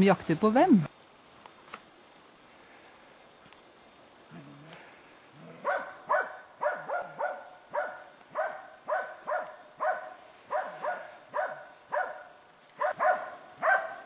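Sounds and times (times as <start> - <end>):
dog barking: 5.6 - 14.0.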